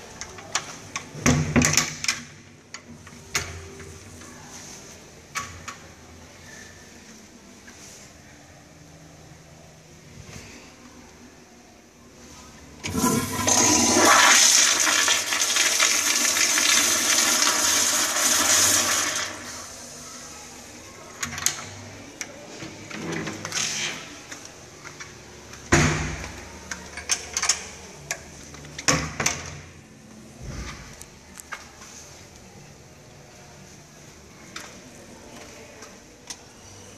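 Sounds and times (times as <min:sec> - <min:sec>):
toilet flushing: 0:12.8 - 0:19.8.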